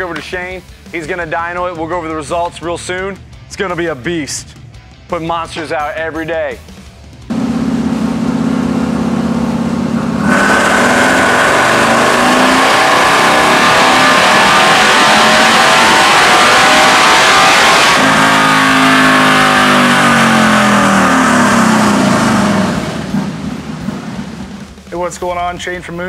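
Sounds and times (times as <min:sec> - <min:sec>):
motorcycle engine revving on dynamometer: 0:07.3 - 0:24.8.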